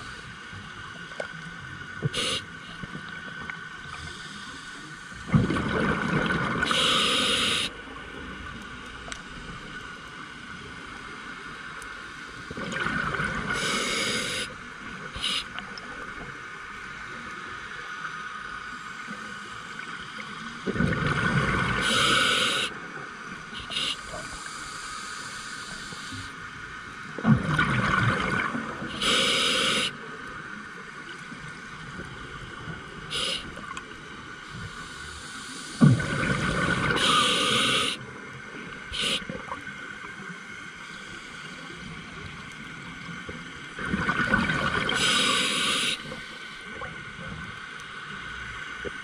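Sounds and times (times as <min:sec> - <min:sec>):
air hissing through regulator: 0:02.0 - 0:02.6, 0:06.6 - 0:07.8, 0:13.5 - 0:14.6, 0:15.2 - 0:15.6, 0:21.8 - 0:22.8, 0:23.5 - 0:26.4, 0:28.9 - 0:30.0, 0:33.1 - 0:33.6, 0:34.4 - 0:36.1, 0:36.9 - 0:38.0, 0:38.9 - 0:39.4, 0:44.9 - 0:46.8
rumbling rush of bubbles: 0:05.3 - 0:06.7, 0:20.7 - 0:21.8, 0:27.2 - 0:28.7, 0:35.8 - 0:37.0, 0:43.7 - 0:45.0.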